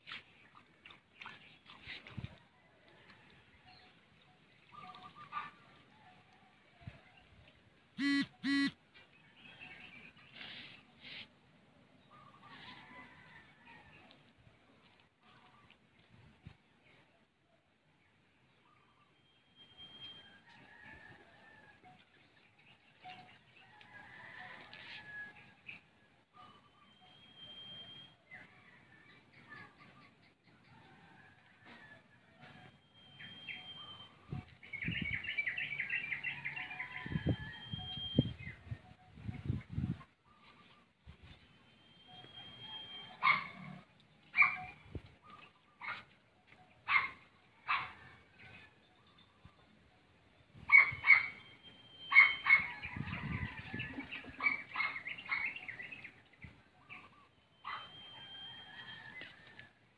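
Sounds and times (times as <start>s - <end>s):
dog barking and yelping: 42.6s - 46.2s, 46.8s - 48.0s, 50.7s - 51.4s, 52.0s - 52.8s, 54.0s - 55.6s, 57.6s - 58.2s.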